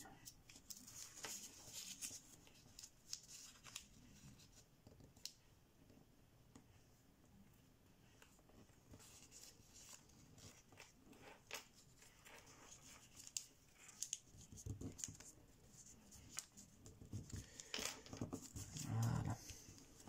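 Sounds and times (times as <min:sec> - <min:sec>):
paper crinkling and rustling: 0:00.2 - 0:04.6, 0:08.9 - 0:20.0.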